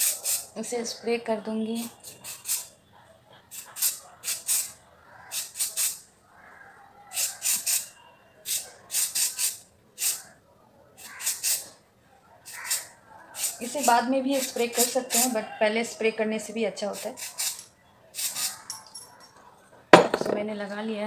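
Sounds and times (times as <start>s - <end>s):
aerosol spray hissing: 0.0s - 0.5s.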